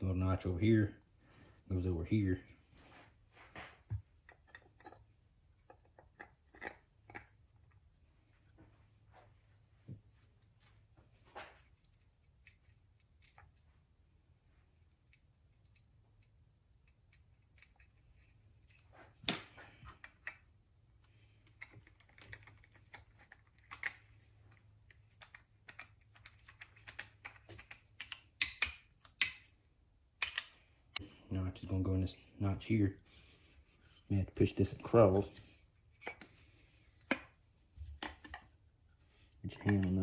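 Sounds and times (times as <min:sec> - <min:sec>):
screwdriver and bolts clicking on metal: 0:30.2 - 0:30.5.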